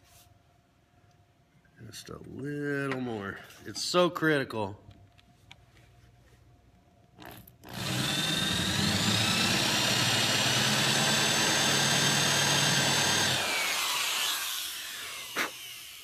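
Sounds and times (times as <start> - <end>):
electric drill boring into wood: 7.2 - 16.0.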